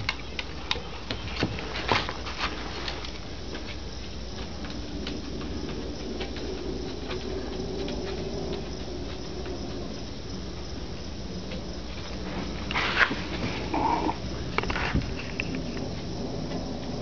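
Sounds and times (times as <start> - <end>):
dog paws pattering: 0.0 - 17.0
low background hum: 0.0 - 17.0.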